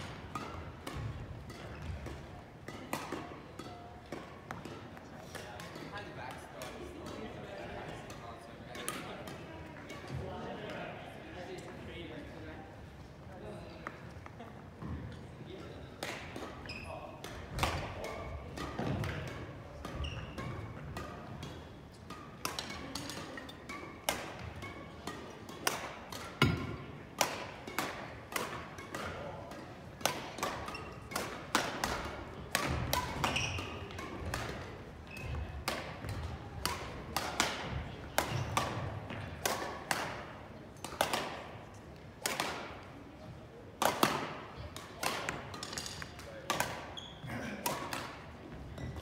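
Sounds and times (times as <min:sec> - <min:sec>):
rackets hitting shuttlecocks: 0:00.0 - 0:10.2, 0:17.2 - 0:43.1, 0:43.7 - 0:49.0.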